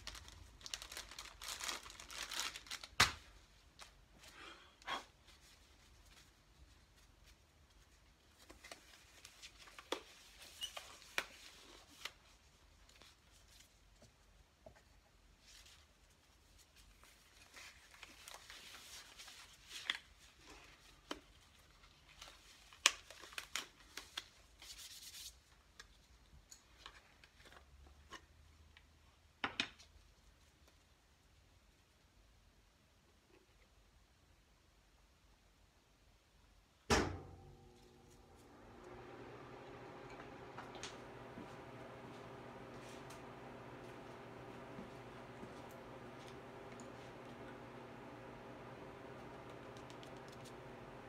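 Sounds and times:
gloved hands rubbing and crinkling: 0:00.0 - 0:27.9.

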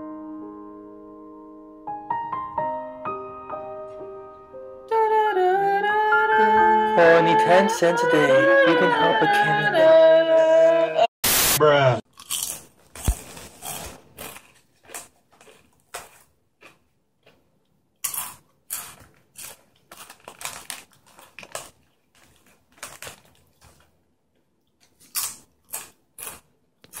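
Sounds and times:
crunching chips while chewing: 0:12.1 - 0:27.0
foil chip bag crinkling: 0:12.4 - 0:16.3, 0:18.2 - 0:23.9.

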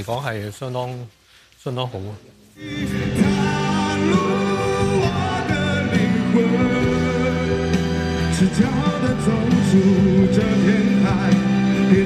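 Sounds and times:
low accompaniment: 0:02.6 - 0:12.0
person singing a ballad: 0:02.6 - 0:12.0.

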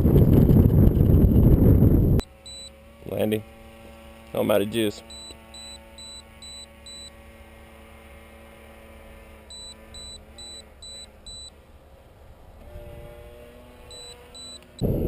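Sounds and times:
light wind rumble: 0:00.0 - 0:02.2, 0:14.8 - 0:15.0
faint steady hum: 0:00.0 - 0:15.0
electronic alarm beeping: 0:02.2 - 0:02.8, 0:05.1 - 0:07.2, 0:09.5 - 0:11.6, 0:13.8 - 0:14.9.

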